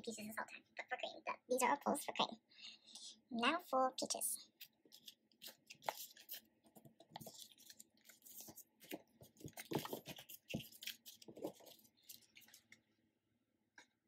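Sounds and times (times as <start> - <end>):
cards rustling and tapping: 4.5 - 12.8.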